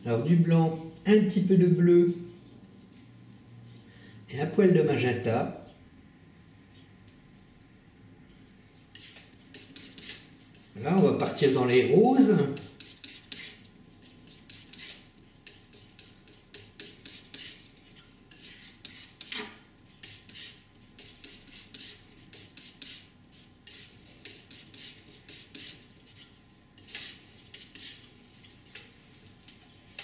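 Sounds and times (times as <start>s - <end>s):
painting knife scraping palette: 8.6s - 30.0s.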